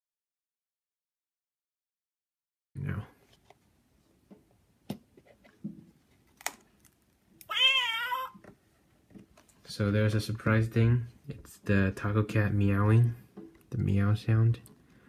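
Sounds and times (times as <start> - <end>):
recorded cat meow: 7.4 - 8.4.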